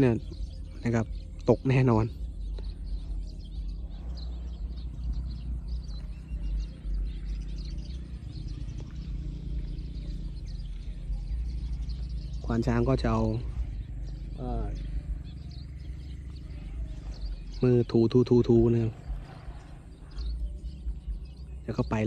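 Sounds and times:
faint bird chirps: 0.0 - 22.0
steady low rumble: 0.0 - 22.0.

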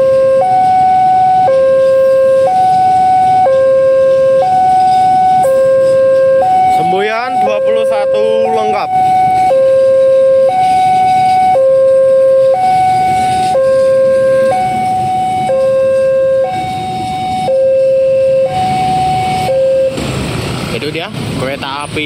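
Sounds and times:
level crossing two-tone alarm: 0.0 - 20.0
train coaches rumbling on rails: 18.5 - 22.0.

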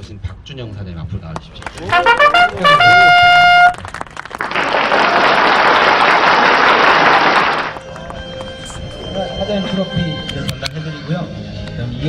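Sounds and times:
audience applauding: 1.5 - 8.6
brass fanfare: 1.8 - 4.0.

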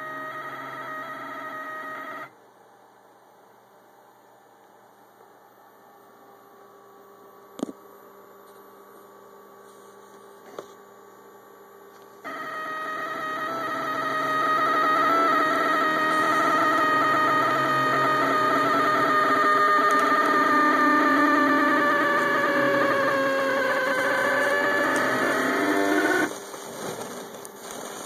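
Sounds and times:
stepper motors whining: 0.0 - 2.3, 12.3 - 28.0
faint electrical hum: 0.0 - 28.0.

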